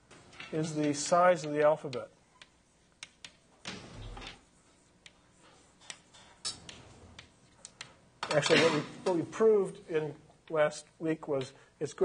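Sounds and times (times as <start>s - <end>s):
faint clicks and taps: 0.8s - 3.8s.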